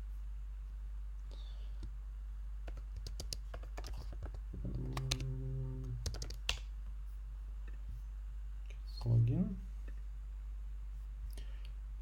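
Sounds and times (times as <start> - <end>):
low steady hum: 0.0 - 12.0
keyboard key clicks: 6.0 - 6.6.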